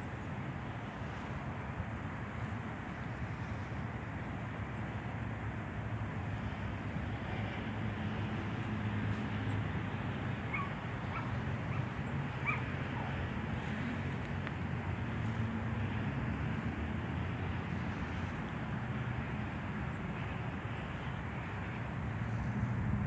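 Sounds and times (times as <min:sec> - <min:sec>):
high animal yelps: 0:10.5 - 0:13.2.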